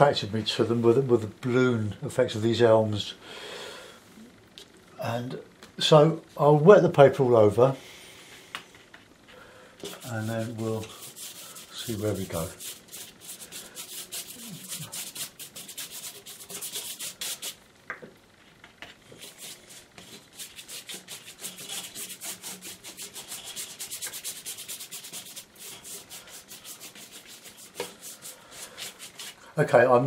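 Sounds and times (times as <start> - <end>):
brush strokes rubbing water on paper: 9.8 - 17.6, 19.1 - 29.4.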